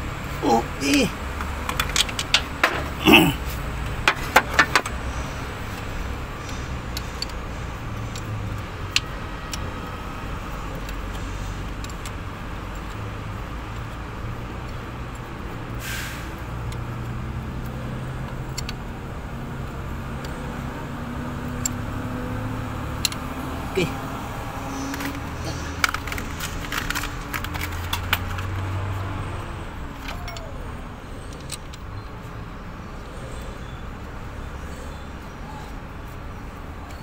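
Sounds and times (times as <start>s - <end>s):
wrench clinking on metal: 30.0s - 30.5s.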